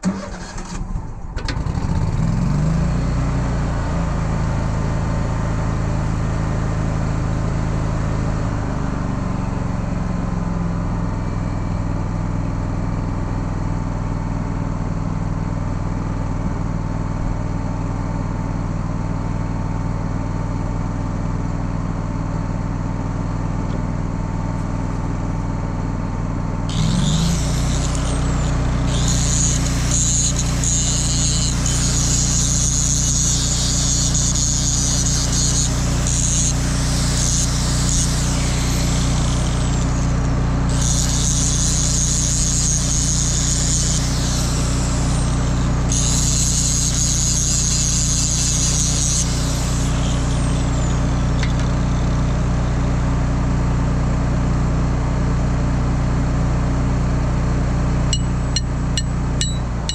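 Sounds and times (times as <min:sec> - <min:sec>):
angle grinder grinding steel: 0:26.7 - 0:52.4, 0:58.2 - 0:59.9.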